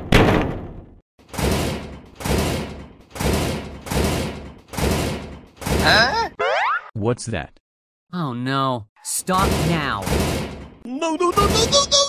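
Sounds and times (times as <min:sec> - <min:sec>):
heavy bangs: 0:00.0 - 0:06.1, 0:09.3 - 0:10.8.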